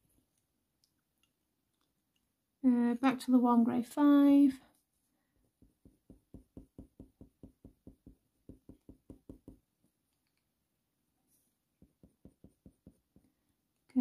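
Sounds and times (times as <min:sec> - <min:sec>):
pencil tapping on paper: 0:05.4 - 0:10.0, 0:11.7 - 0:13.6.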